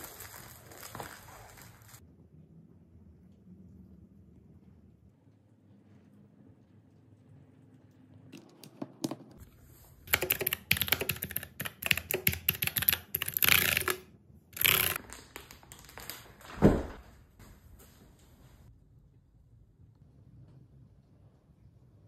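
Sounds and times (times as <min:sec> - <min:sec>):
mechanical keyboard typing: 0:10.1 - 0:14.0, 0:14.6 - 0:15.0.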